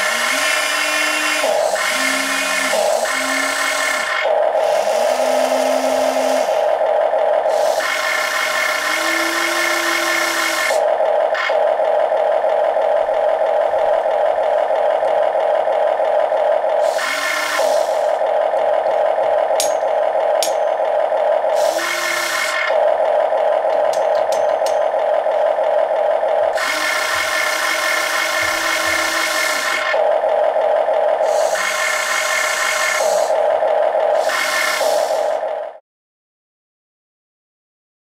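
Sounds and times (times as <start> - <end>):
electric motor whirring: 0.0 - 6.8, 7.5 - 11.6, 16.8 - 19.0, 20.2 - 30.2, 31.2 - 35.5
simulated diesel engine sound: 0.0 - 35.8.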